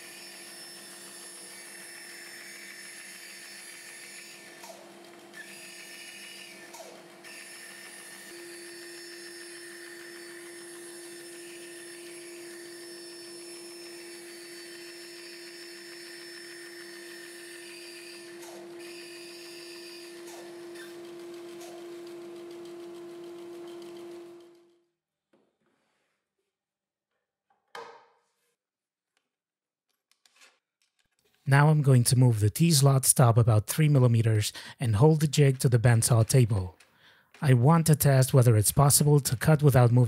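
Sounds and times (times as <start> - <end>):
band saw cutting board: 0.0 - 24.5.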